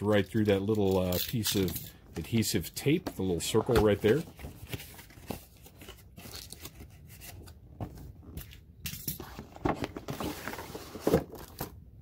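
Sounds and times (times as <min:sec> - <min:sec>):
cardboard packaging scraping: 0:09.4 - 0:11.7.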